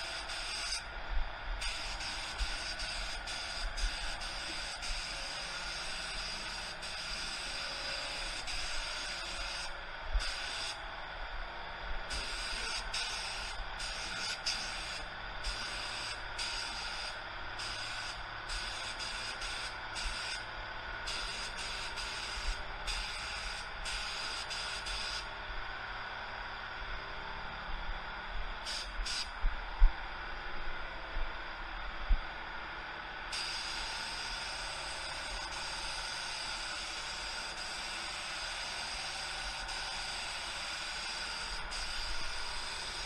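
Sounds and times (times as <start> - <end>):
paint spray gun hissing: 0.0 - 0.8, 1.6 - 10.8, 12.1 - 20.5, 21.1 - 25.3, 28.7 - 29.3, 33.3 - 43.0.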